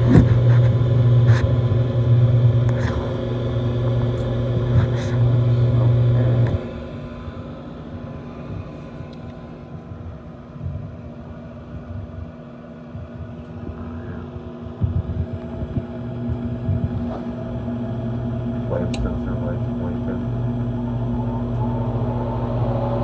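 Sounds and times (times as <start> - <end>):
furnace motor hum: 0.0 - 23.0
deep rumble: 12.9 - 23.0.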